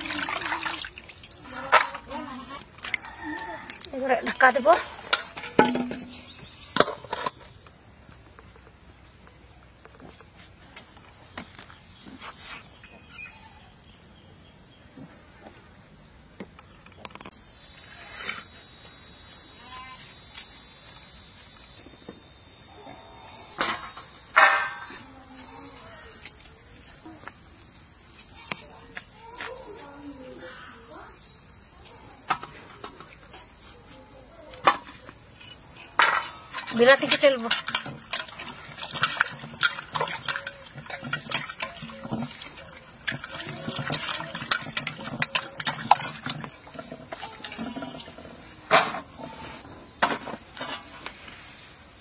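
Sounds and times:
insects shrilling: 17.3s - 52.0s.

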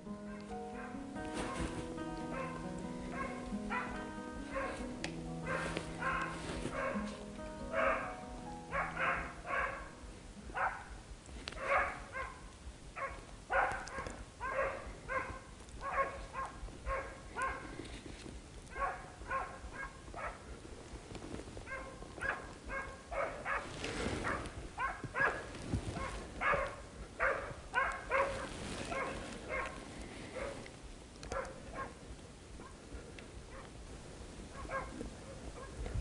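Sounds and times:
dog barking: 0.3s - 1.7s, 2.3s - 10.9s, 11.6s - 12.4s, 13.0s - 17.7s, 18.7s - 20.4s, 21.7s - 29.8s, 30.4s - 30.6s, 31.3s - 32.0s, 34.5s - 35.8s.

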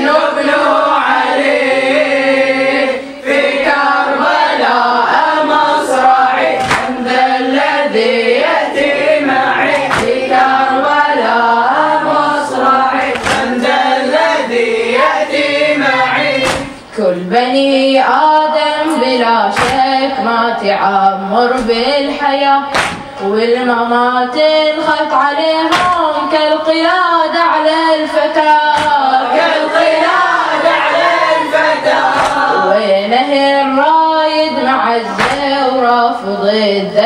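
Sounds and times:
boys chanting together: 0.0s - 37.0s
hands slapping chests: 6.6s - 7.0s, 9.8s - 10.3s, 13.1s - 13.7s, 16.4s - 16.8s, 19.6s - 19.9s, 22.7s - 23.2s, 25.7s - 26.0s, 28.7s - 29.0s, 32.0s - 32.5s, 35.2s - 35.6s.

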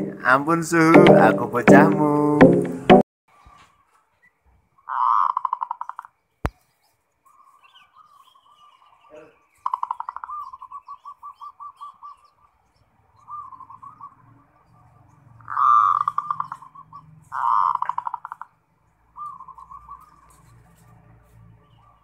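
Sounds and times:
dove cooing: 15.4s - 18.5s.

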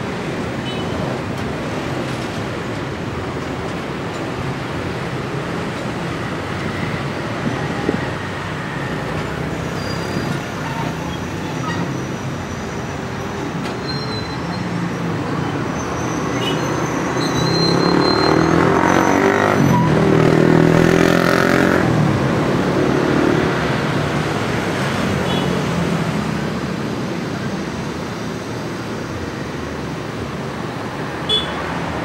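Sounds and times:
train coaches rumbling on track: 0.0s - 32.0s
faint high squeals: 9.7s - 12.9s, 13.8s - 19.9s.

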